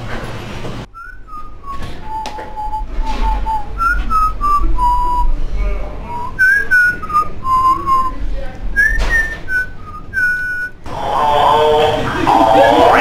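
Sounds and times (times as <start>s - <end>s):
man whistling a tune: 0.9s - 5.3s, 6.1s - 8.1s, 8.8s - 10.8s.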